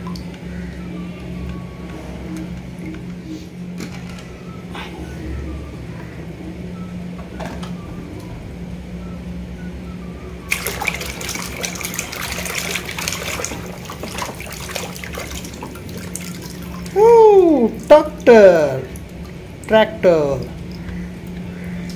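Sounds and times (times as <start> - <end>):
water splashing in a plastic tub: 10.5 - 21.9.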